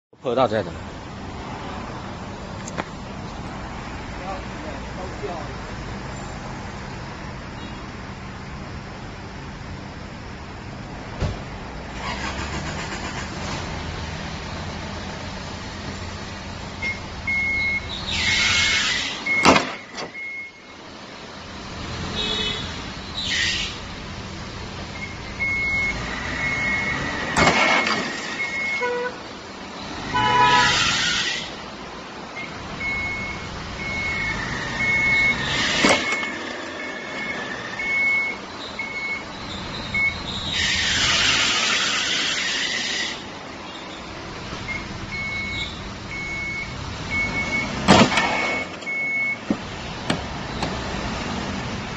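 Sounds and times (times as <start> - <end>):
reversing warning beeps: 16.8 - 17.9, 19.2 - 20.8, 25.0 - 29.0, 32.4 - 40.4, 44.7 - 49.4
hiss bursts: 40.5 - 43.3.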